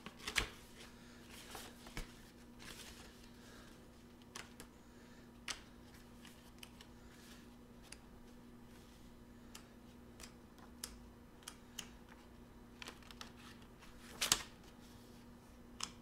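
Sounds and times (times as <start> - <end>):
book pages leafed through: 0.0 - 3.4
faint steady hum: 0.0 - 16.0.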